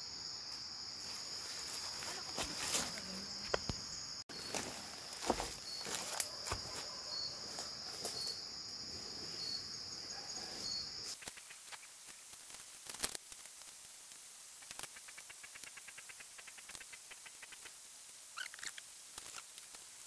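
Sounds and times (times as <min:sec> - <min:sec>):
cracks and rustles: 0:04.5 - 0:08.3, 0:11.1 - 0:13.9
insect buzzing: 0:14.6 - 0:19.8.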